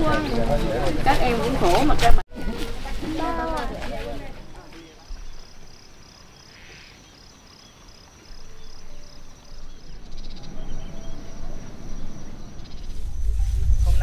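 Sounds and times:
faint bird chirps: 4.8s - 13.4s
low rushing noise: 9.8s - 14.0s.

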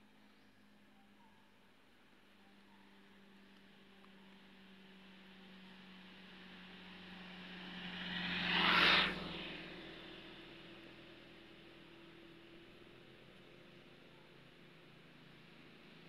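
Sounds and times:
vehicle passing by: 4.9s - 12.3s.

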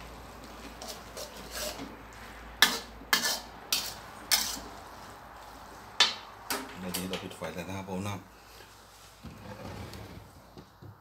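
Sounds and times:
metal spatula scraping a wok: 0.6s - 5.0s.

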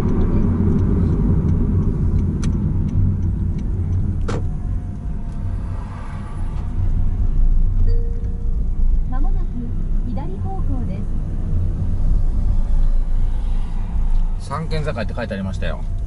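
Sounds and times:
sharp clicks: 0.0s - 5.4s
car road and engine rumble: 0.0s - 16.0s.

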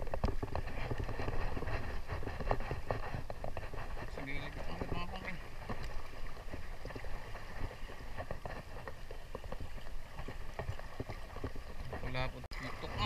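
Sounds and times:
wind rumble on microphone: 0.0s - 13.0s
small waves splashing on rocks: 3.6s - 13.0s.

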